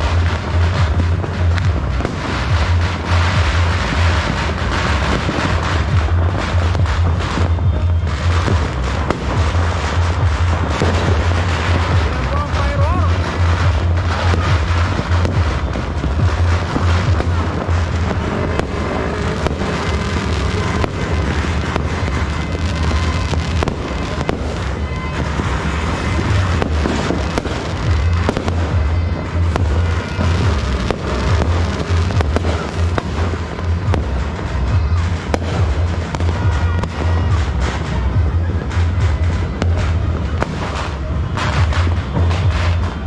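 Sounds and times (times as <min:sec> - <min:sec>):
fireworks and firecrackers banging: 0:00.0 - 0:43.0
music playing: 0:00.0 - 0:43.0.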